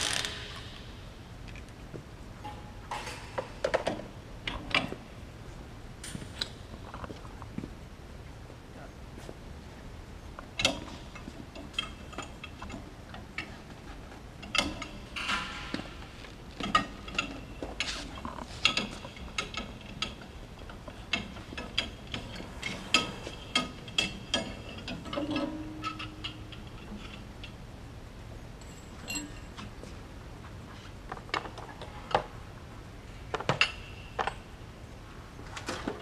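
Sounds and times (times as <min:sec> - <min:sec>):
tools and metal parts clanking: 0:02.4 - 0:05.0, 0:14.4 - 0:27.3, 0:28.6 - 0:29.9.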